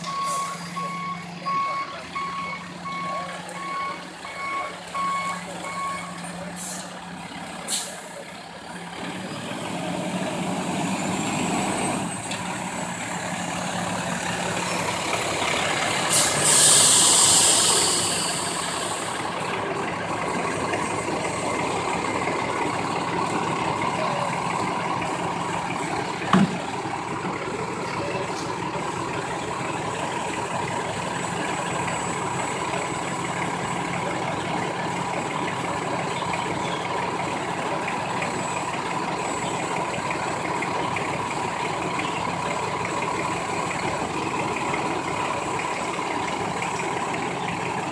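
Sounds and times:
diesel engine idling: 0.0 - 47.9
air brakes hissing: 6.4 - 7.0, 7.6 - 8.2, 15.9 - 19.2.

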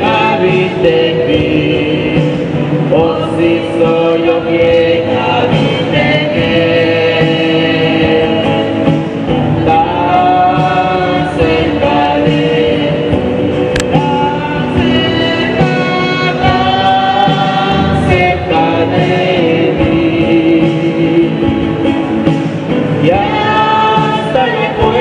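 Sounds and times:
voices singing a hymn: 0.0 - 25.0.

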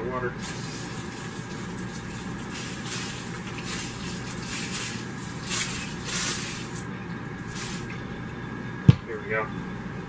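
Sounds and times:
pressure sprayer hissing spritzes: 7.4 - 7.9.

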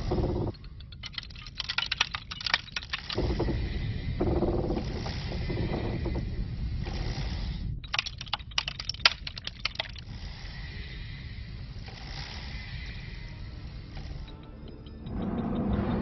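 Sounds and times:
sharp clicks and ticks: 0.0 - 6.2, 7.8 - 10.2, 13.9 - 16.0
low steady rumble: 12.7 - 16.0.

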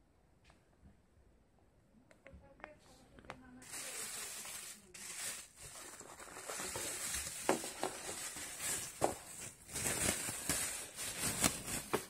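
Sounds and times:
plastic bag rustling: 3.6 - 12.0.

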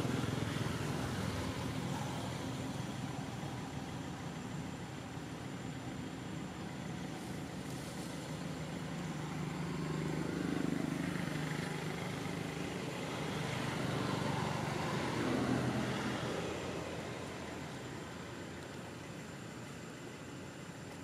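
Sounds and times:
distant motor vehicle rumble: 0.0 - 21.0.

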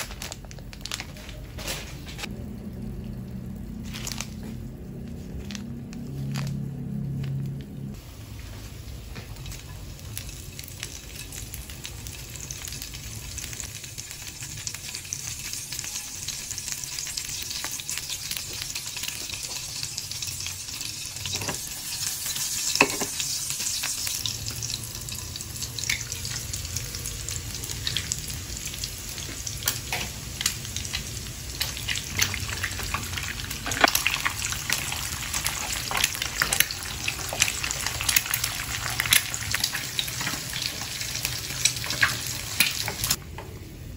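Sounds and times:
oil sizzling in a frying pan: 8.0 - 43.2
sharp pops and crackles: 31.6 - 34.4.

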